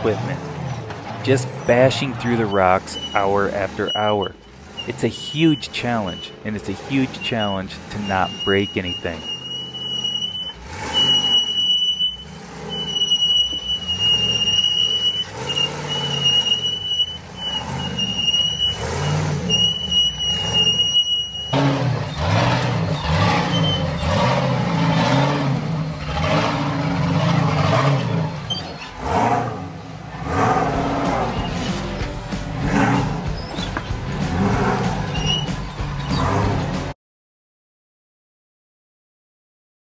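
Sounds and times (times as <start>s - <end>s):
car engine revving: 0.0s - 37.0s
high-pitched beep: 2.5s - 6.4s, 7.1s - 21.6s.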